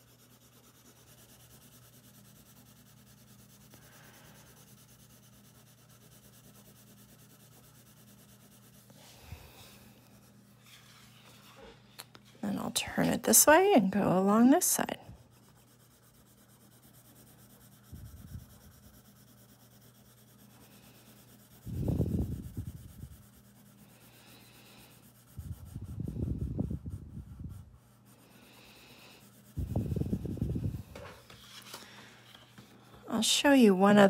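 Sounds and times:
pencil shading on paper: 0:00.0 - 0:31.6
paper sliding on table: 0:10.6 - 0:12.4, 0:30.8 - 0:32.8.

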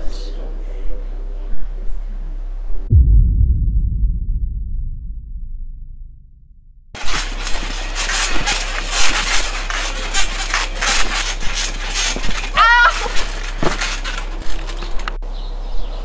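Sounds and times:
bouncing on trampoline mat: 0:07.0 - 0:15.0.

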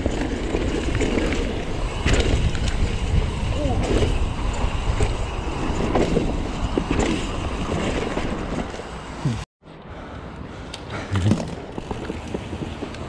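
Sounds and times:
wind buffeting microphone: 0:00.0 - 0:08.4
mountain bike rolling on dirt: 0:00.0 - 0:09.4, 0:10.9 - 0:13.0.

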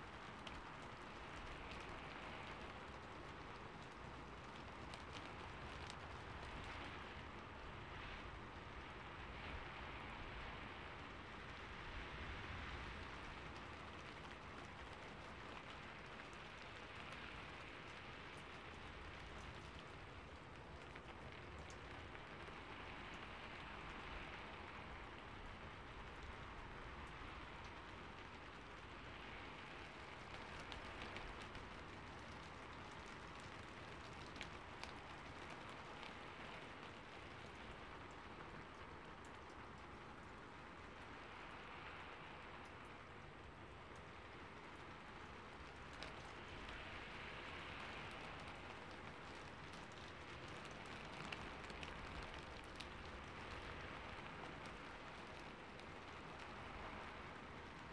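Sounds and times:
faint steady hissing: 0:00.0 - 0:57.9
faint clicks: 0:12.7 - 0:57.9.

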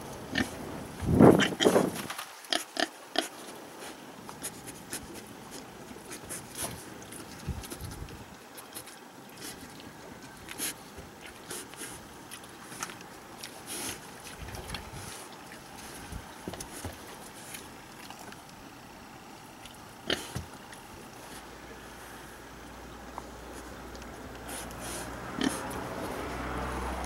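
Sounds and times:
rustling in wood shavings: 0:00.4 - 0:18.6, 0:24.4 - 0:27.0
pig grunting: 0:01.3 - 0:01.9, 0:20.0 - 0:20.5, 0:24.8 - 0:25.8.

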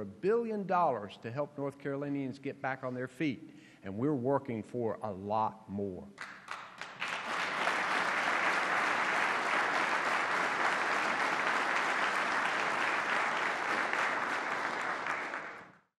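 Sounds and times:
audience applauding: 0:06.2 - 0:15.9.

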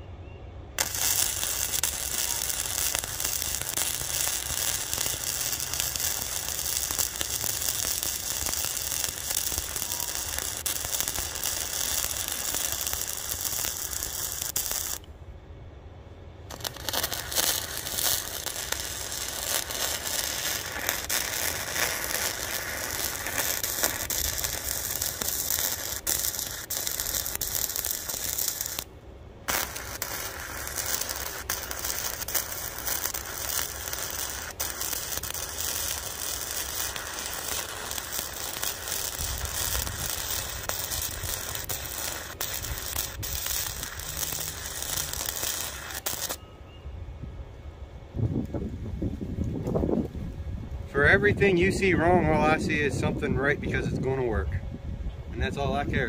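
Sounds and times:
welder arc crackling: 0:00.8 - 0:15.1, 0:16.5 - 0:46.4.

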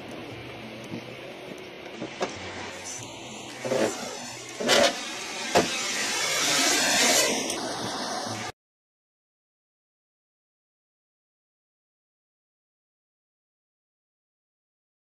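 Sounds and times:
road noise and tyre spray: 0:01.6 - 0:08.5.

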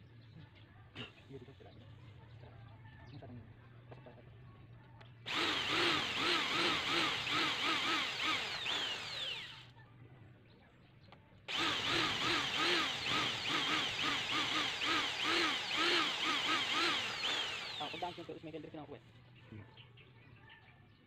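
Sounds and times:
electric drill boring through metal: 0:05.3 - 0:09.7, 0:11.5 - 0:18.4.

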